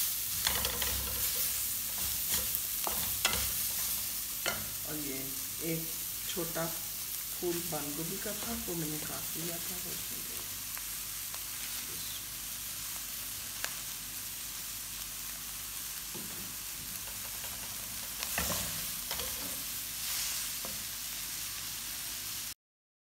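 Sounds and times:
spatula scraping a wok: 0.0s - 4.8s, 16.9s - 21.5s
vegetables sizzling in oil: 0.0s - 22.6s.

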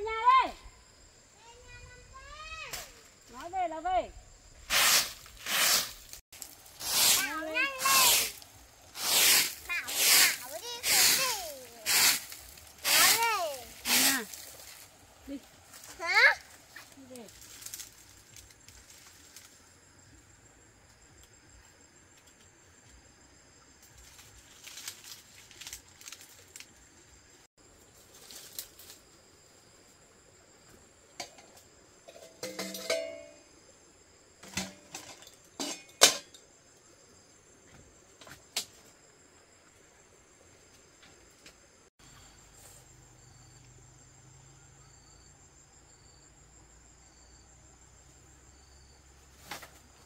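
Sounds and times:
crickets chirping: 0.0s - 50.0s
rustling and scraping: 4.6s - 19.7s, 23.8s - 26.8s, 27.8s - 29.2s.

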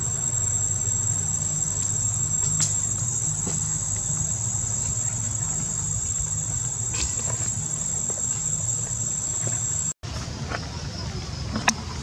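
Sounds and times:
insects trilling: 0.0s - 10.0s
low steady hum: 0.0s - 12.0s.

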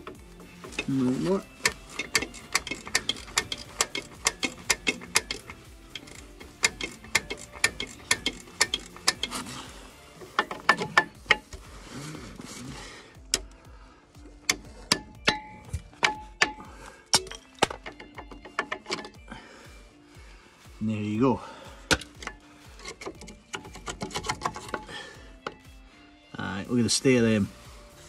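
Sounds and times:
hand ratchet clicking: 0.0s - 12.4s, 13.2s - 13.6s, 14.2s - 19.3s, 21.8s - 25.8s.

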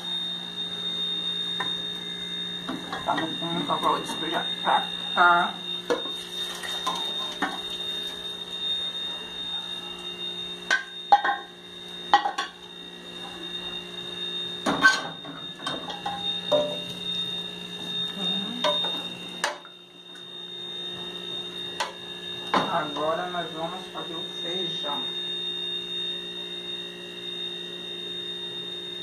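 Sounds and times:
steady electrical hum: 0.0s - 29.0s
metal pots clanking: 10.7s - 11.4s.

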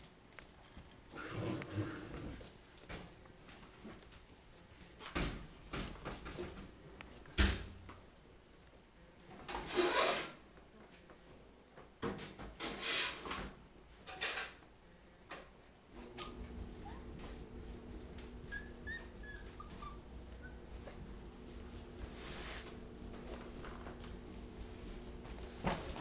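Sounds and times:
rustling: 15.9s - 26.0s.

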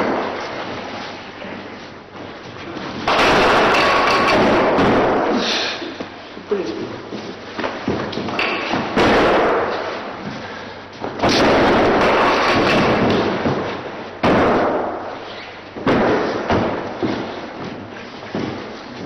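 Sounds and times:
bodies thudding on gym floor: 15.8s - 19.0s.

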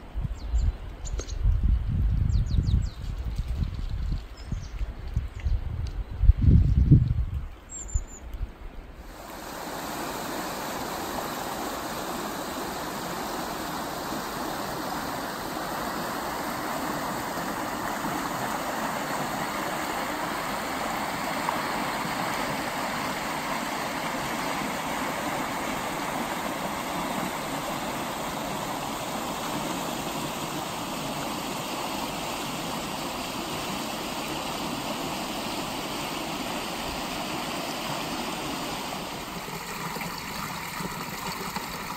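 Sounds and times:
river water rushing over rapids: 9.0s - 41.9s.

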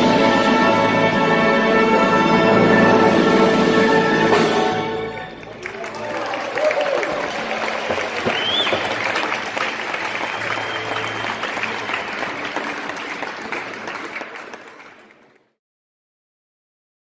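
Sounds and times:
people applauding and cheering: 5.0s - 15.6s
high whistle-like calls: 8.2s - 9.0s, 10.1s - 12.1s.

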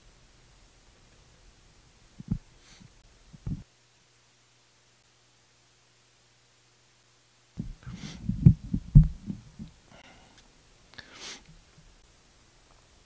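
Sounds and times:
microphone handling thumps: 2.2s - 2.5s, 3.3s - 3.6s, 7.6s - 9.7s.

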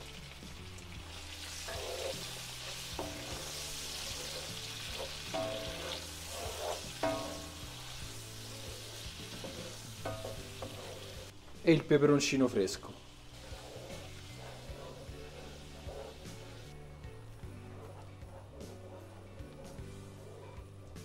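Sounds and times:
octopus sizzling in frying pan: 0.0s - 11.5s, 12.5s - 16.8s
soft background music: 0.0s - 21.0s.

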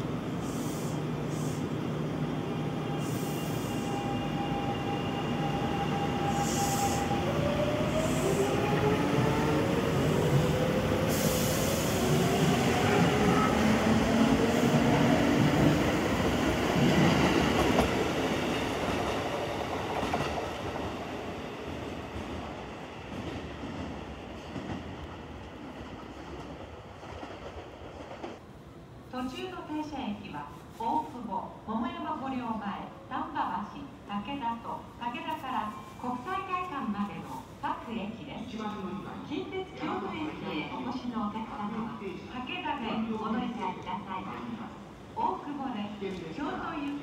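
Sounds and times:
short bursts of hiss: 0.4s - 1.7s.

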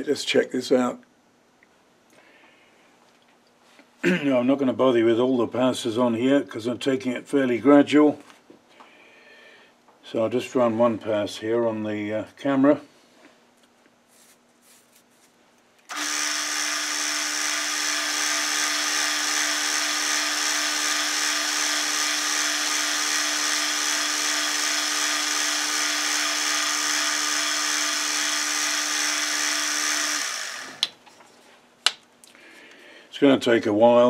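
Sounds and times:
metal lathe running: 15.9s - 30.8s.

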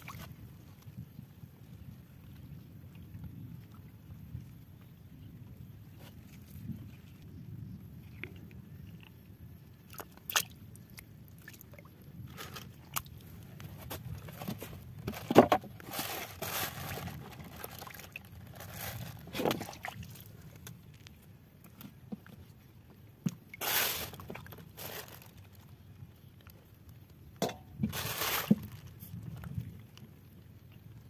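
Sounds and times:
water sloshing and splashing: 0.0s - 1.0s, 8.0s - 25.8s, 27.4s - 31.0s.

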